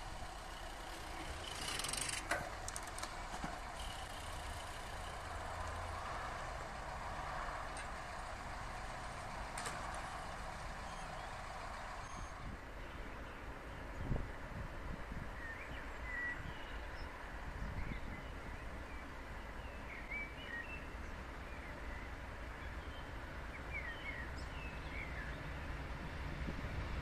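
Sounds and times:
cars idling: 0:00.0 - 0:12.5
traffic hum: 0:00.0 - 0:15.2.

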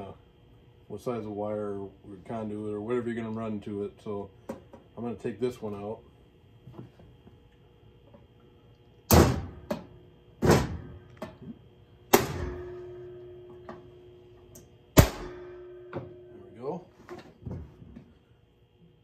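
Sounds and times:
steel housing ringing: 0:12.1 - 0:16.8.

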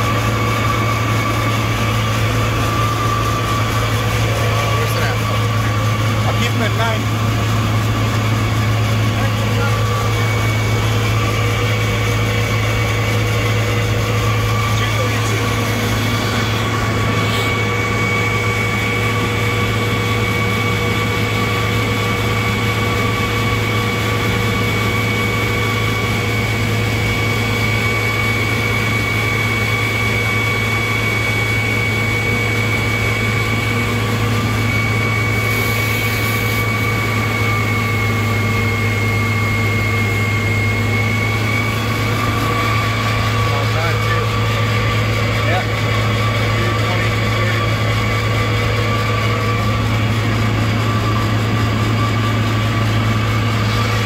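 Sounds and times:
fire engine pump humming: 0:00.0 - 0:54.0
pump high whine: 0:00.0 - 0:54.0.

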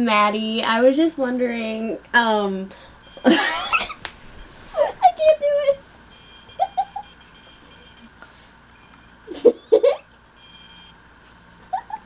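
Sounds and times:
person giggling: 0:03.2 - 0:04.0, 0:06.6 - 0:07.1, 0:09.3 - 0:10.1, 0:11.6 - 0:12.0
phone ringing tone: 0:06.1 - 0:08.1, 0:10.4 - 0:11.0.

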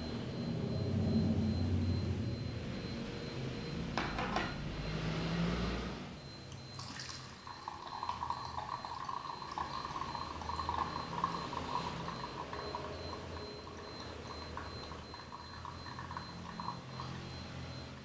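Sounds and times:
coffee trickling into glass: 0:06.7 - 0:17.3.

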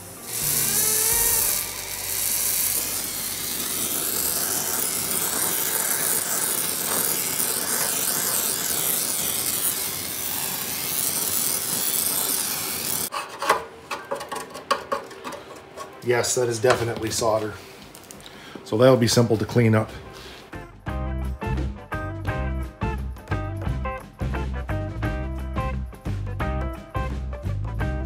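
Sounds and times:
torch flame hissing: 0:00.0 - 0:13.1.

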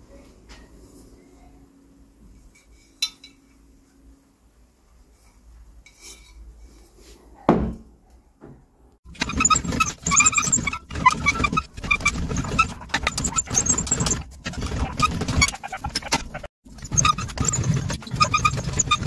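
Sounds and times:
bead-rolling tool squeaking and grinding: 0:09.1 - 0:19.0.

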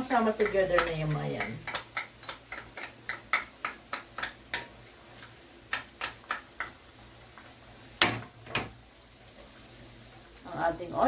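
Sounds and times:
wooden spatula knocking on wok: 0:00.1 - 0:04.8, 0:05.7 - 0:06.8.

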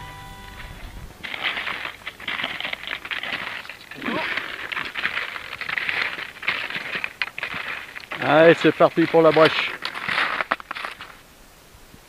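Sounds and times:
background music: 0:00.0 - 0:01.2
skis crunching over snow: 0:00.1 - 0:11.2.

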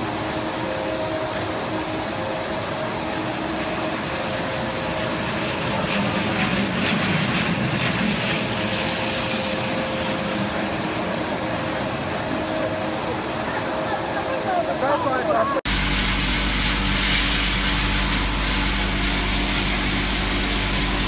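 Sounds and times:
factory machinery humming: 0:00.0 - 0:21.0
dry kibble rattling in drum: 0:15.7 - 0:21.0.

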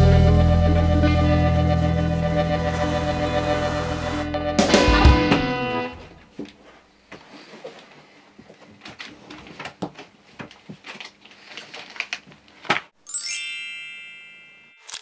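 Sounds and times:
room door opening: 0:04.6 - 0:06.3
paper rustling: 0:08.6 - 0:12.9
padded envelope being handled: 0:08.9 - 0:12.9
bright multi-tone chime: 0:13.0 - 0:15.0.

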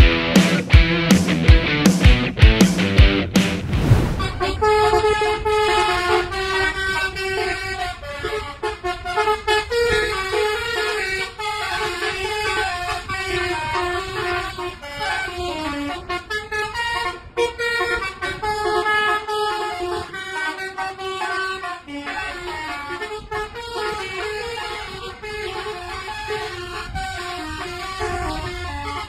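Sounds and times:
steady low rumble: 0:03.1 - 0:07.1
multi-tone air horn tune: 0:04.4 - 0:29.0.

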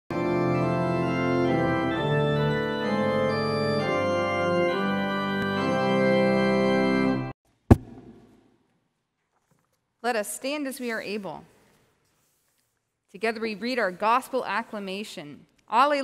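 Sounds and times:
organ playing sustained chords: 0:00.1 - 0:07.4.

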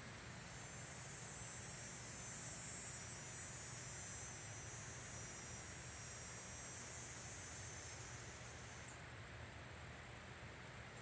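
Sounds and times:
insects chirring: 0:00.0 - 0:09.0.

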